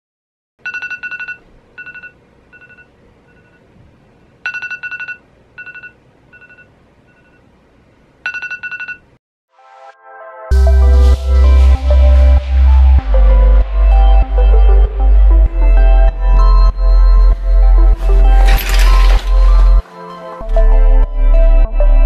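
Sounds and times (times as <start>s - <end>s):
phone alarm beeping: 0.6s - 3.6s, 4.5s - 7.4s.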